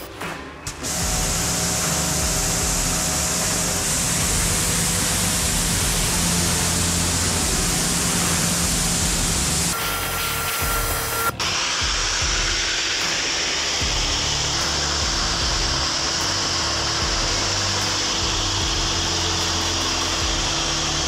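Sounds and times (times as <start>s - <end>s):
machine hum: 0.0s - 21.0s
pressure washer spraying: 0.7s - 21.0s
wet extraction vacuum running: 0.7s - 21.0s.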